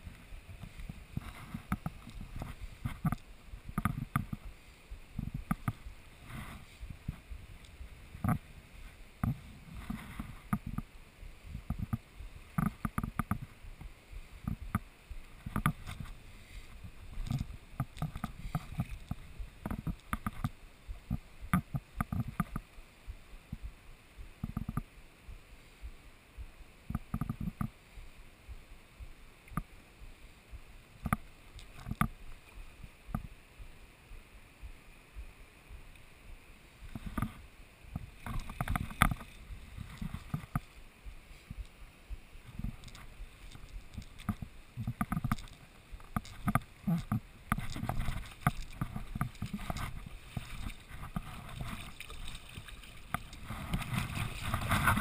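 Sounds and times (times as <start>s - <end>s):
water sloshing: 42.5s - 55.0s.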